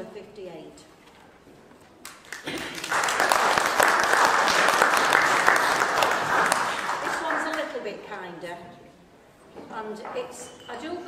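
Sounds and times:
audience applauding: 2.0s - 7.7s.

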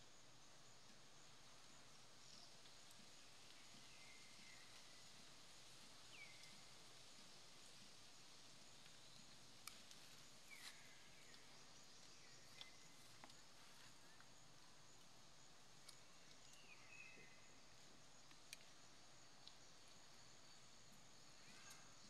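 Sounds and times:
steady high hiss: 0.0s - 22.0s
faint high chirps: 21.3s - 22.0s.

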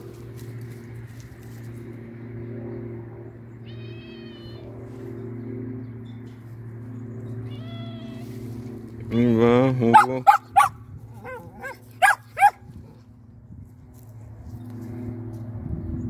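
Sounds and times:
steady low hum: 0.0s - 16.0s
cat meowing: 3.6s - 4.7s, 7.5s - 8.2s.

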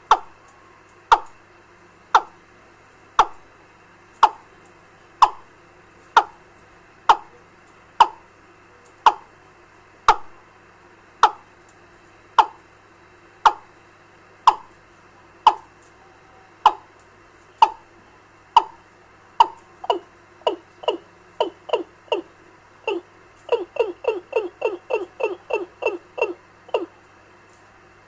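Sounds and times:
faint steady hum: 0.0s - 28.0s
bird call through speaker: 17.5s - 17.9s, 19.4s - 27.1s.

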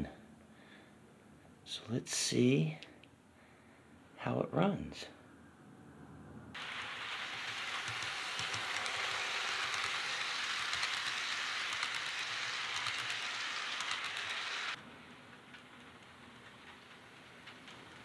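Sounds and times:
model train rolling on track: 6.6s - 18.0s
wheels clicking on rails: 6.6s - 18.0s.

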